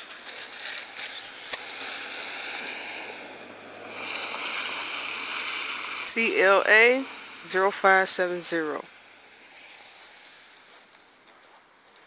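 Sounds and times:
vehicle on wet slushy road: 0:00.0 - 0:10.9
high wavering squeak: 0:01.0 - 0:01.6
sharp click: 0:01.0 - 0:01.6.

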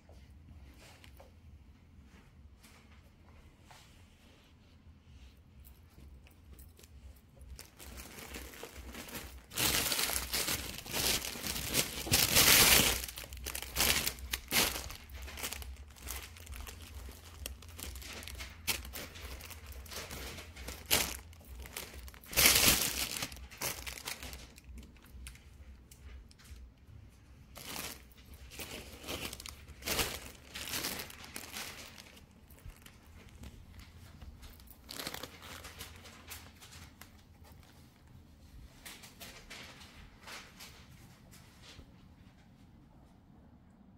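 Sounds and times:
plastic bags rustling: 0:06.0 - 0:38.1.

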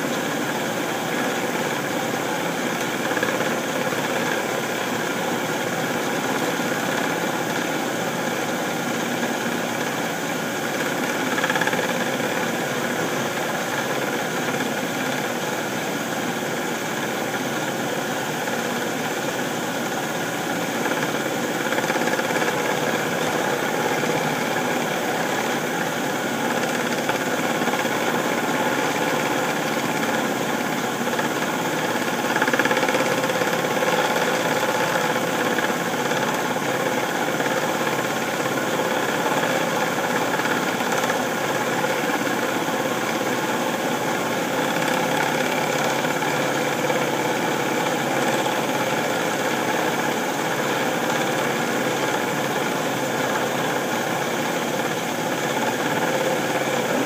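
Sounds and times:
metal lathe motor humming: 0:00.0 - 0:57.0.

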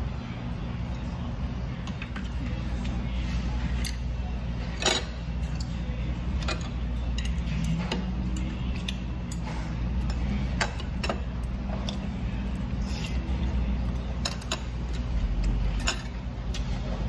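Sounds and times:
steady low hum: 0:00.0 - 0:17.0
chopsticks and dishes clinking: 0:13.9 - 0:16.7.

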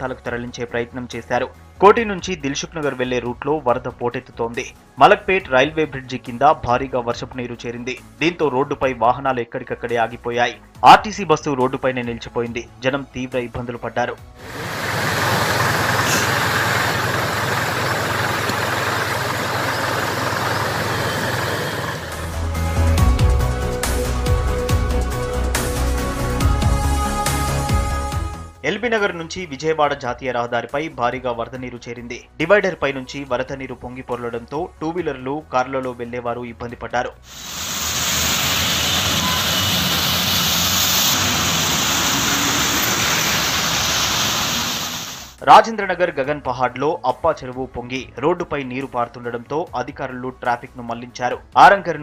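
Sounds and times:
music: 0:00.0 - 0:14.5, 0:22.0 - 0:37.4, 0:45.4 - 0:52.0
water rushing: 0:14.4 - 0:22.3, 0:37.3 - 0:45.3
diesel engine running: 0:14.4 - 0:22.9, 0:37.3 - 0:45.4.

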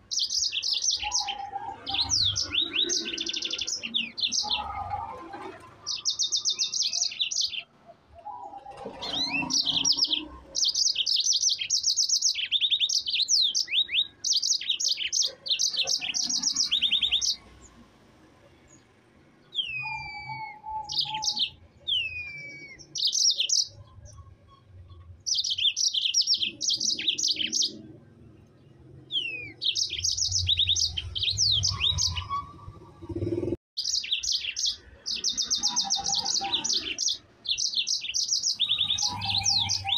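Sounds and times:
canary singing fast trills: 0:00.0 - 0:39.9
downward-sliding bird whistles: 0:19.6 - 0:22.8.

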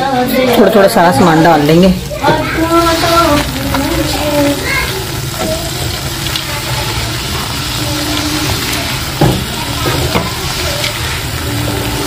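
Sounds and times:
metal spatula knocking on pan: 0:09.2 - 0:10.3.

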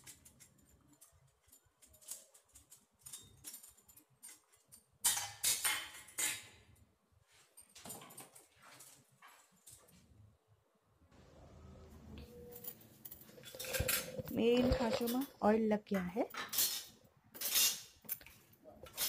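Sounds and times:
metal plates clinking on stone: 0:12.6 - 0:15.4.

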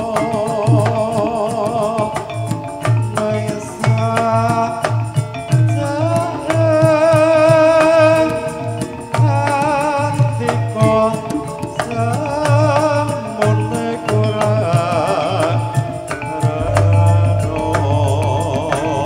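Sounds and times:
person singing: 0:00.0 - 0:08.7, 0:09.3 - 0:19.0
hand drum beating: 0:00.0 - 0:19.0
bronze keys and gongs struck: 0:16.6 - 0:19.0.

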